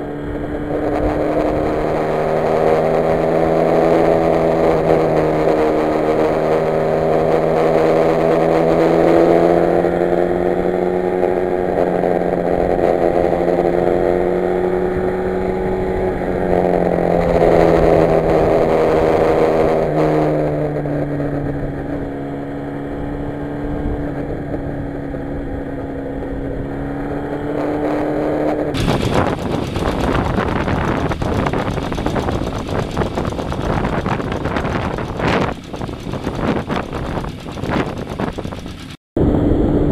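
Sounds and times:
motorcycle engine running: 0.0s - 39.9s
wind rush on microphone: 27.7s - 39.9s.

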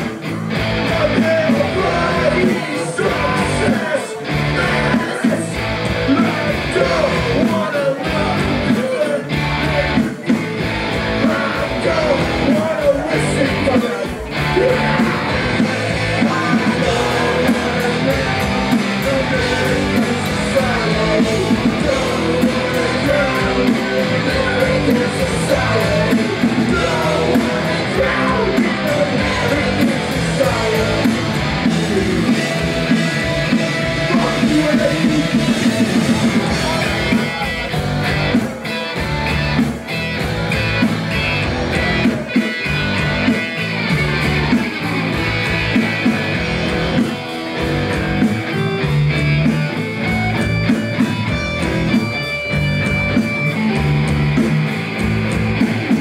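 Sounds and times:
shouted vocals: 0.0s - 10.3s, 10.9s - 39.2s
distorted electric guitar: 0.0s - 56.0s
drums: 0.0s - 56.0s.

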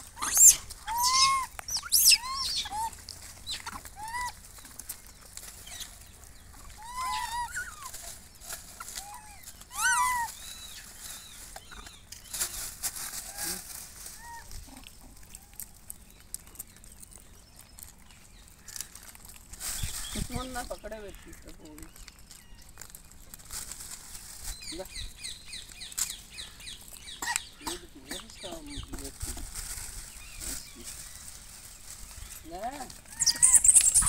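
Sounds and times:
monkeys squeaky coo calls: 0.1s - 4.5s, 6.6s - 8.1s, 8.8s - 10.9s, 13.2s - 15.4s, 33.0s - 34.0s.

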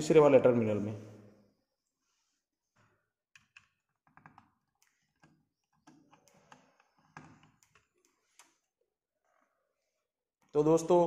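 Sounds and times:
screwdriver clicks and taps: 3.3s - 8.6s.

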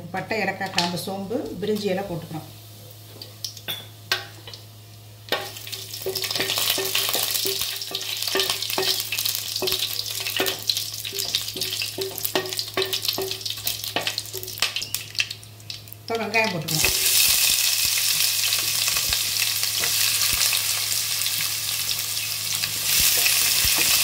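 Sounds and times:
spices sizzling in hot oil: 0.8s - 24.0s
wooden spatula knocking steel pot: 5.3s - 14.2s.

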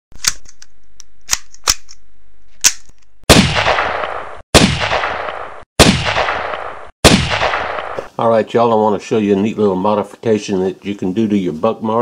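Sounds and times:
sharp cracks: 2.6s - 8.2s
loud gunshots with echo: 3.3s - 8.1s.

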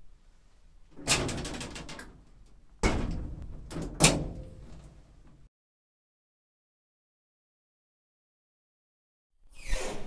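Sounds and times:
metal lattice gate rattling: 1.0s - 2.2s.

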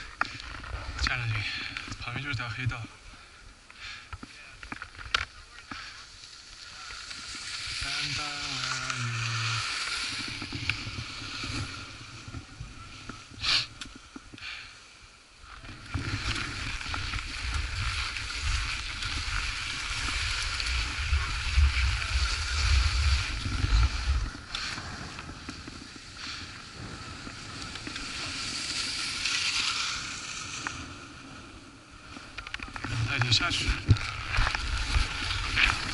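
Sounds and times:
skis scraping on snow: 5.3s - 14.6s, 15.5s - 35.9s
wind buffeting microphone: 15.6s - 28.8s.

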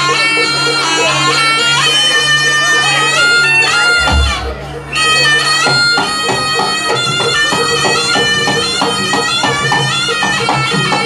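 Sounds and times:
shrill reedy shawm melody: 0.0s - 11.0s
steady drumbeats: 2.6s - 11.0s.

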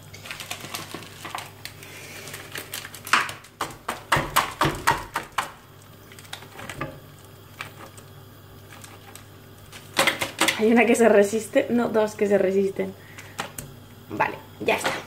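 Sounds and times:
meatballs knocking into frying pan: 3.1s - 5.6s, 9.9s - 10.6s.

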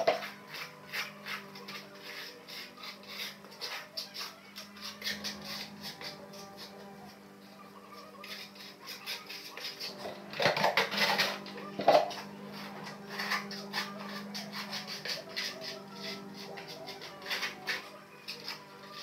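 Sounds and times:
trowel scraping ceramic tile: 0.0s - 19.0s.

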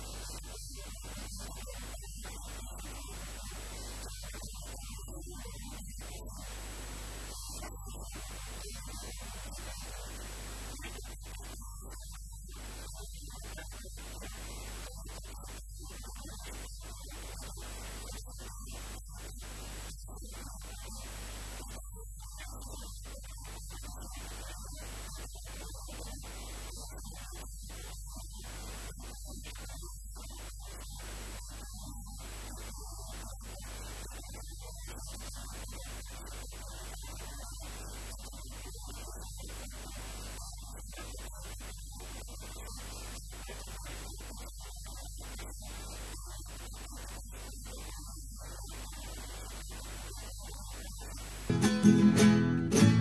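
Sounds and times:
background hiss: 0.0s - 11.6s, 45.2s - 53.0s
electrical mains hum with hiss: 0.0s - 53.0s.

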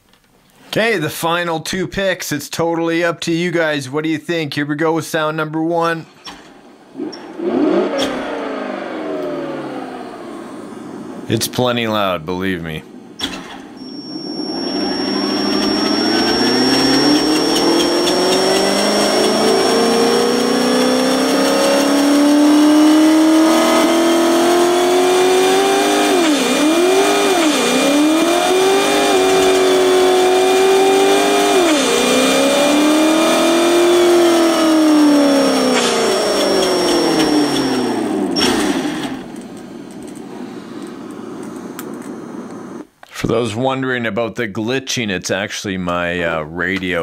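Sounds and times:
synthetic diesel engine revving: 6.6s - 42.8s.

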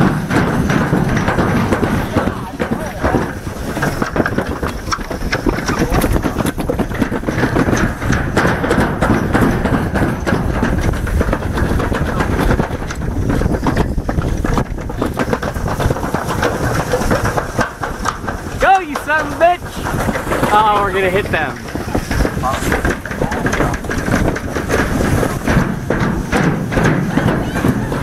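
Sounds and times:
sled rolling rumble on metal chute: 0.0s - 28.0s.

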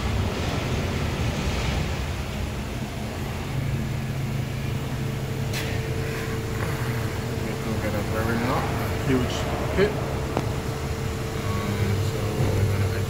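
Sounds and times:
machinery humming: 0.0s - 13.0s
steady tone: 2.8s - 13.0s.

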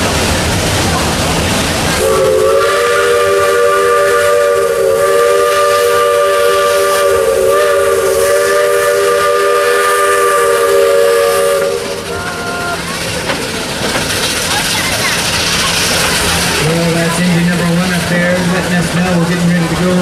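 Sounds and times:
steam locomotive chime whistle: 2.0s - 12.2s.

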